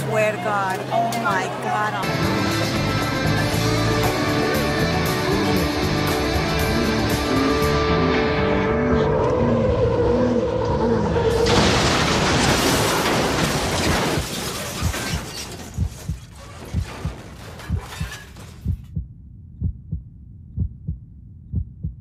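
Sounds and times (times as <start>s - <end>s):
heartbeat thumping: 15.8s - 22.0s.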